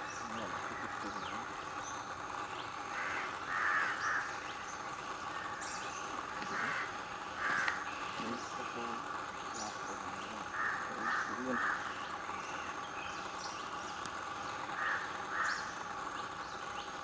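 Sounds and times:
steady background hiss: 0.0 - 17.0
crow cawing: 0.6 - 1.3, 2.8 - 4.6, 5.2 - 5.7, 6.3 - 8.8, 10.5 - 12.1, 14.7 - 15.8.

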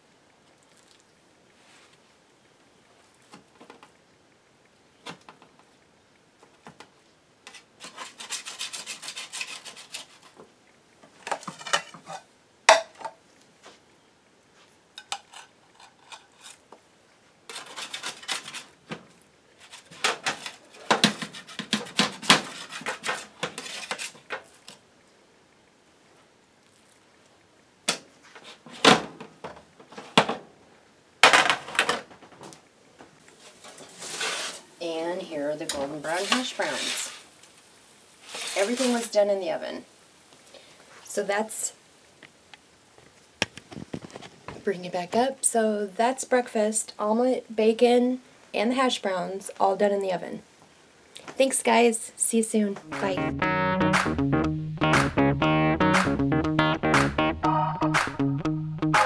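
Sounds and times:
metal spatula scraping baking sheet: 7.5 - 10.3, 17.5 - 18.7, 19.6 - 24.2, 33.5 - 34.7, 35.6 - 37.3, 38.2 - 39.2.

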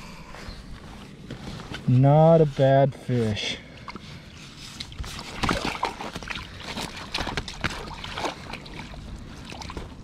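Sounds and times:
water splashing and dripping: 4.8 - 10.0.

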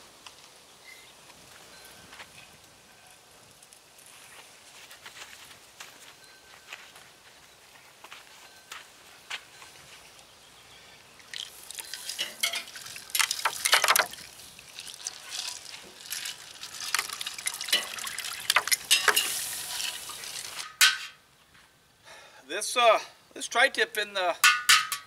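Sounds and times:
crackles and pops: 11.2 - 20.8
meat sizzling on grill: 11.4 - 20.7.

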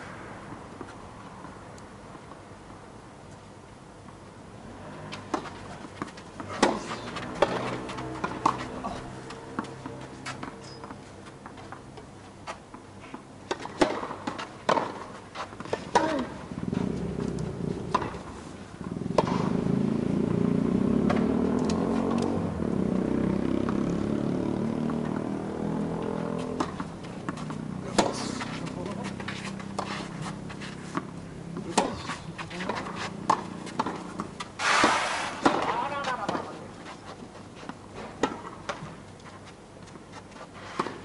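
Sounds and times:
engine hum: 0.0 - 35.7
tennis ball struck by rackets: 5.1 - 11.8, 13.5 - 16.4, 17.9 - 19.6, 21.0 - 22.3, 26.4 - 29.9, 30.9 - 36.6, 38.0 - 39.0.

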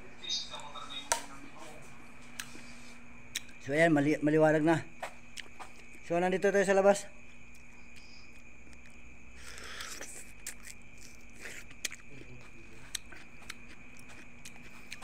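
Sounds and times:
wet chewing clicks: 3.3 - 3.6, 7.5 - 15.0.

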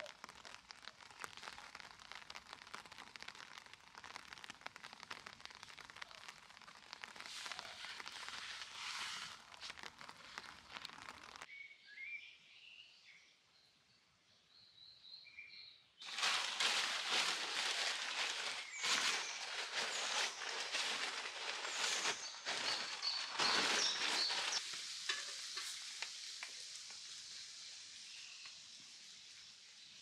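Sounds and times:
dry leaves rustling and crackling: 0.0 - 11.5, 16.0 - 25.2.

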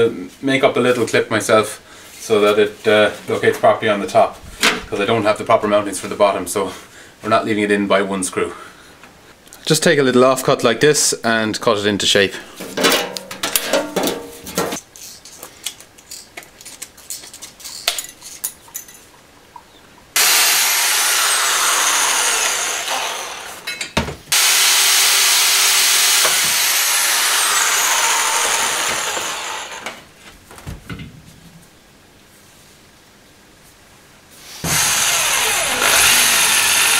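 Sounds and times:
power tool grinding steel: 20.2 - 23.7, 24.3 - 29.9, 34.5 - 36.9.

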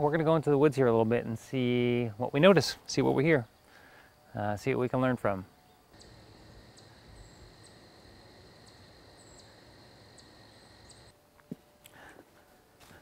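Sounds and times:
high-pitched insect trill: 5.9 - 11.1.

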